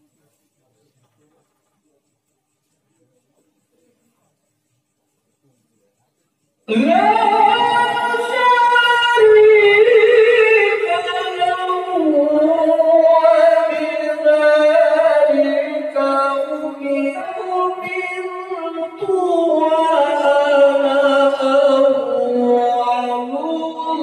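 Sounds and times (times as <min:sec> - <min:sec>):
man reciting melodically into microphone: 0:06.6 - 0:24.0.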